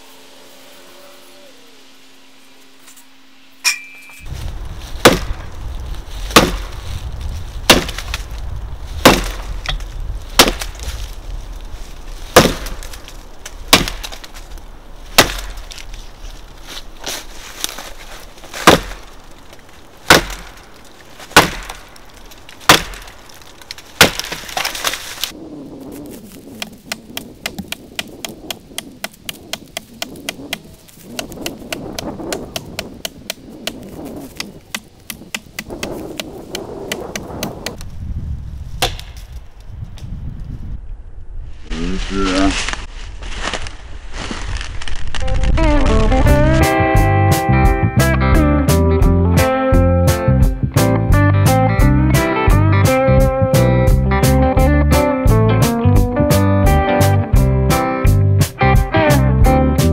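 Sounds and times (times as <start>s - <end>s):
axe chopping tree trunk: 5.0s - 5.5s, 6.3s - 6.8s, 7.6s - 8.2s, 9.0s - 11.0s, 12.2s - 14.4s, 15.1s - 15.8s, 18.5s - 19.1s, 20.0s - 21.9s, 22.6s - 25.3s, 26.6s - 30.6s, 31.2s - 37.8s, 38.8s - 39.2s.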